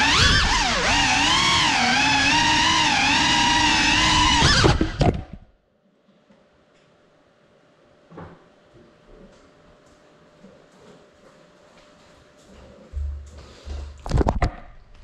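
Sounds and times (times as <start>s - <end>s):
drone motors whining: 0.0s - 5.4s.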